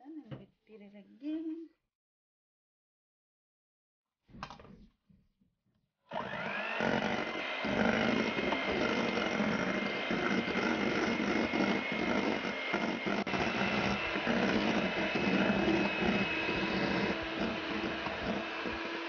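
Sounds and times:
electric hand mixer whining: 6.1s - 19.0s
beaters whipping in metal bowl: 6.6s - 19.0s.

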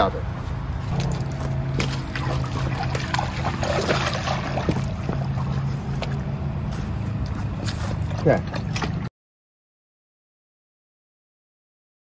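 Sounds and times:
dog splashing through water: 0.9s - 6.3s, 7.2s - 9.1s
boat engine idling: 0.9s - 9.1s.

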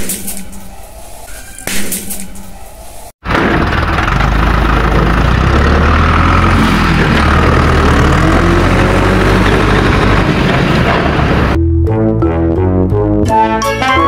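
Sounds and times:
heavy diesel engine running: 3.2s - 11.6s.

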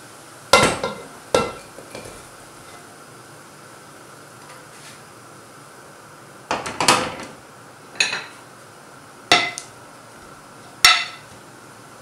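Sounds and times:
metal spoon clanking on pot: 0.6s - 2.2s, 9.3s - 9.6s, 10.9s - 11.3s.

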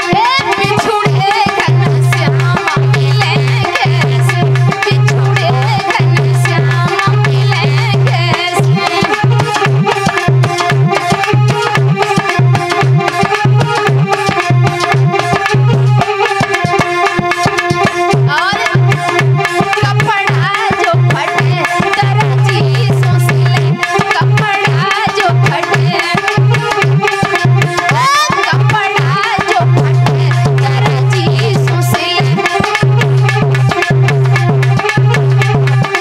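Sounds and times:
folk dance music: 0.0s - 36.0s
hand drum beating: 0.0s - 36.0s
sliding melody: 4.6s - 20.7s.

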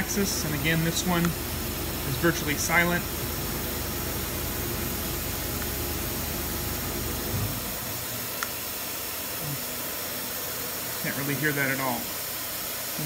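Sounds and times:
low motor hum: 0.0s - 8.3s
steady hiss: 0.0s - 13.0s.

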